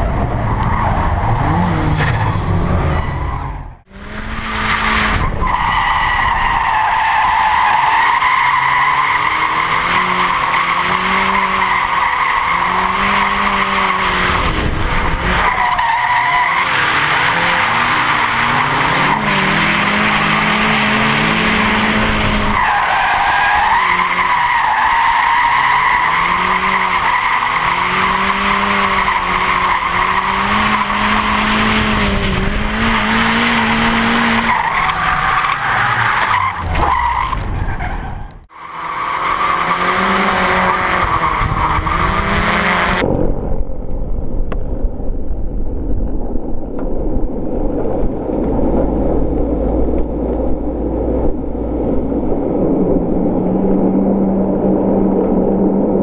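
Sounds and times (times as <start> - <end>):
car engine revving: 0.0 - 43.2.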